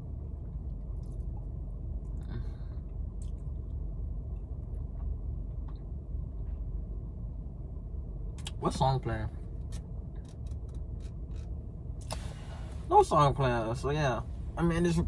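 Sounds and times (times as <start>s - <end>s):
low rumble inside car cabin: 0.0s - 15.0s
soft breath: 2.2s - 3.0s, 12.1s - 12.9s.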